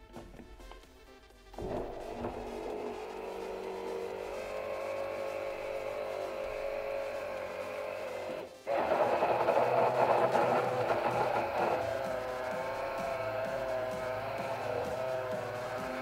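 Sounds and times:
hand blender running: 1.6 - 16.0.

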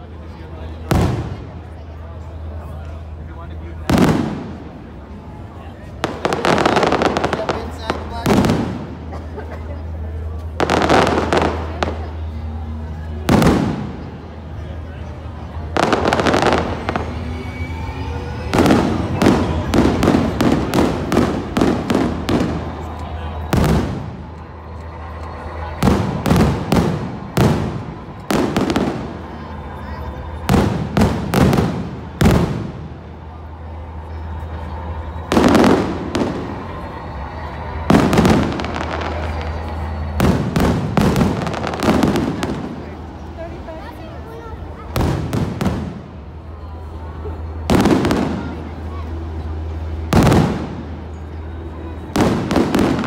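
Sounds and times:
fireworks bursting: 3.7 - 5.3, 6.0 - 9.2, 9.8 - 14.6, 15.5 - 33.2, 33.9 - 44.0, 44.6 - 53.0
firework booms: 3.9 - 4.8.

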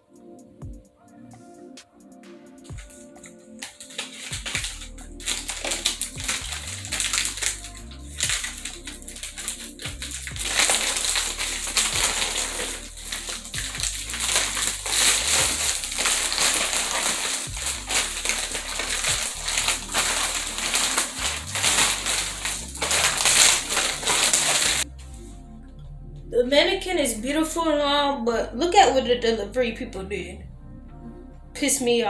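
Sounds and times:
background music with bass line: 0.1 - 32.0
plastic packaging crinkling: 2.7 - 24.9.

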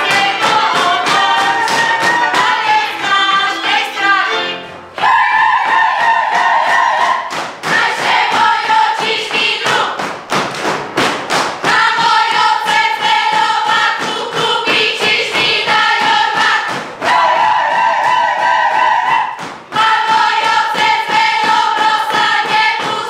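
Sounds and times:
women singing folk song in unison: 0.0 - 10.0, 11.7 - 23.0
feet stamping on wooden floor: 7.5 - 23.0.

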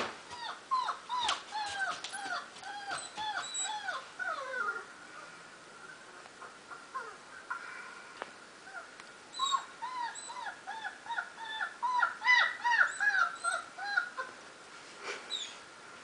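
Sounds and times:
puppies whimpering and squealing: 0.3 - 7.2, 8.7 - 14.4.

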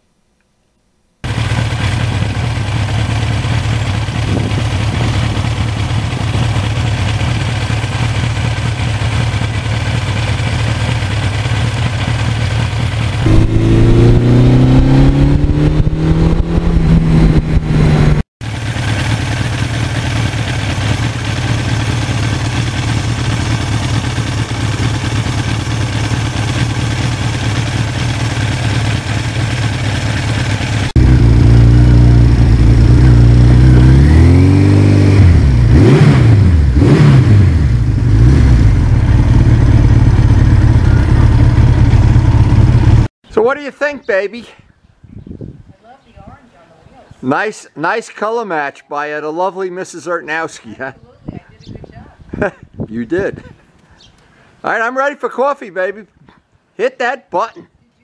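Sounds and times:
motorcycle engine running: 1.2 - 43.1.

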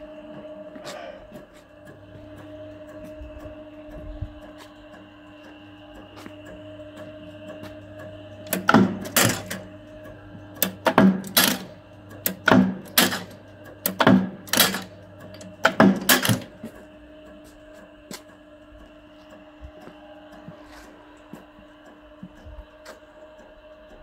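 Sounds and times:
press motor and flywheel hum: 0.0 - 24.0
press stroke metallic clanks: 8.5 - 9.7, 10.6 - 16.8.

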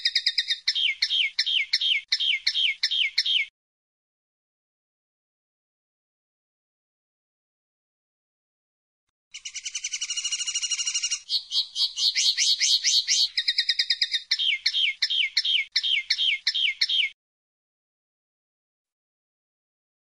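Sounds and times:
bird singing trills: 0.0 - 3.5, 9.4 - 17.2.

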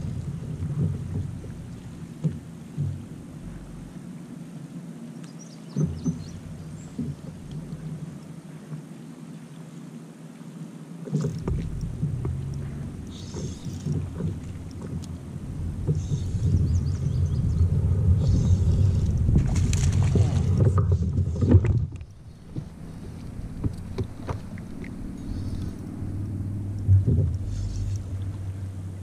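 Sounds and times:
wind and water rumble: 0.0 - 29.0
light knocks on kayak hull: 11.1 - 16.5.

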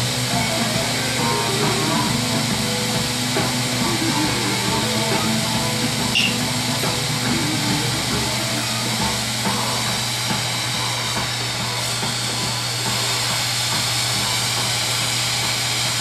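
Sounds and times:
guitar music: 0.0 - 11.8
torch flame hissing: 0.0 - 16.0.

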